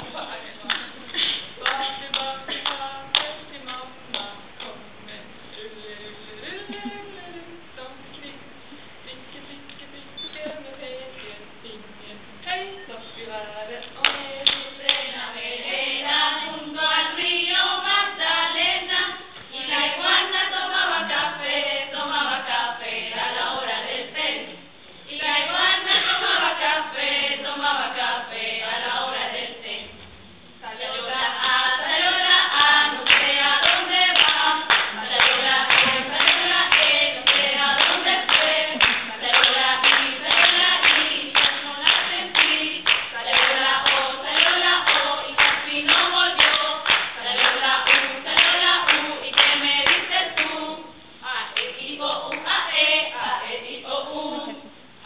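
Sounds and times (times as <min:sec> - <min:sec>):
women singing together: 0:00.0 - 0:54.8
hand claps keeping time: 0:32.6 - 0:50.6.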